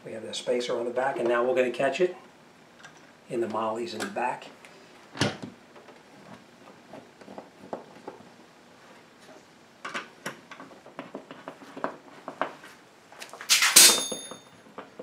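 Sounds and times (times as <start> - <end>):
screwdriver clicks and scrapes: 13.5 - 14.2.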